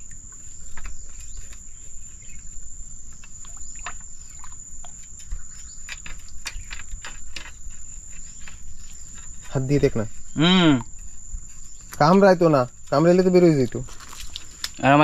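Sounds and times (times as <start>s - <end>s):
crickets buzzing: 0.0s - 15.0s.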